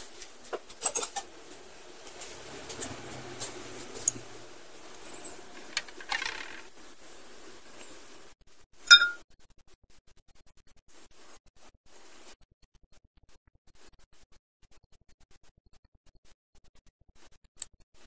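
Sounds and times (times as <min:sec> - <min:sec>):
ceramic plates clinking: 0:08.9 - 0:09.2.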